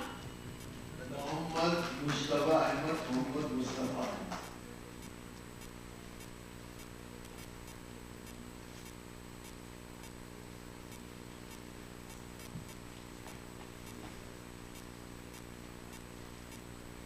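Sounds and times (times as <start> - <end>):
low electrical hum: 0.0 - 17.0
faint irregular clicks: 2.9 - 10.2, 10.9 - 14.1, 14.7 - 16.7.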